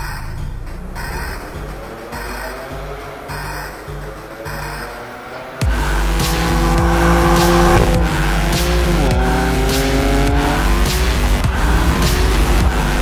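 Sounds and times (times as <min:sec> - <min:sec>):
car engine revving high: 0:00.0 - 0:13.0
music with steady beat: 0:00.6 - 0:13.0.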